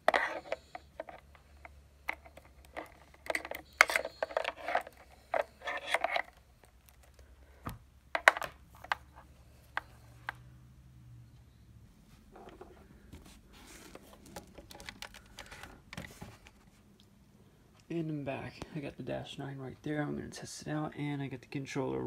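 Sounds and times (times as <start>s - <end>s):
mains cord rustling: 0.0s - 10.5s, 12.0s - 17.0s
faint low hum: 0.0s - 22.0s.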